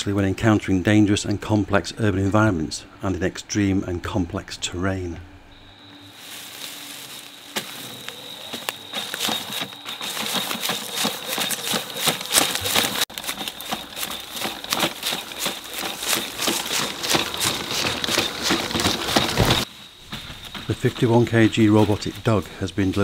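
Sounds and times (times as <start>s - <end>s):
steady high whine: 0.0s - 23.0s
twigs crackling and snapping: 6.1s - 22.4s.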